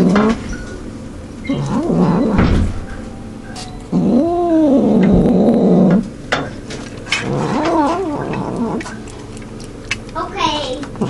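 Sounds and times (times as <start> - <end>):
cat growling and yowling: 1.5 - 2.4, 3.9 - 6.1, 7.2 - 9.0
clicks of eating from tin: 6.7 - 10.2.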